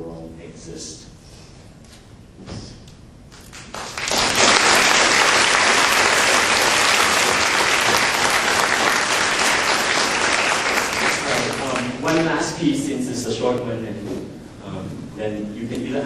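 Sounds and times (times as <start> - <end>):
audience applauding: 3.5 - 12.4.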